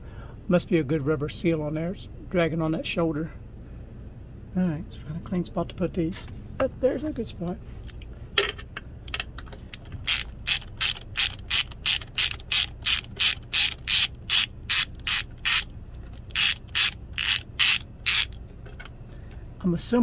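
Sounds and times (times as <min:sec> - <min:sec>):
ratchet wrench clicking: 0:09.7 - 0:18.4.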